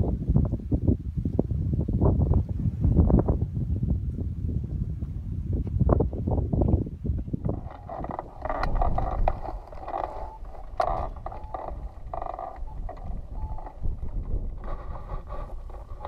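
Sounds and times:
wind buffeting microphone: 0.0s - 16.0s
short fluttering sounds: 7.4s - 16.0s.

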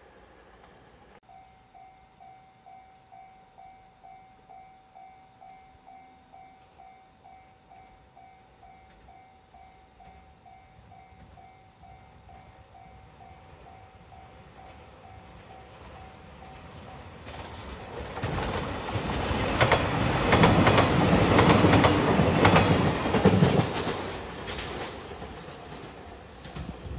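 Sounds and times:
approaching train rumble: 0.0s - 26.9s
level-crossing warning bell: 1.2s - 17.3s.

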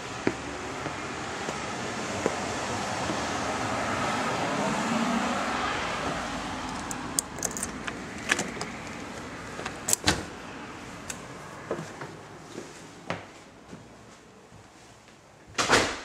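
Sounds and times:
steady outdoor noise: 0.0s - 15.9s
door handle and latch clicks: 6.6s - 10.2s.

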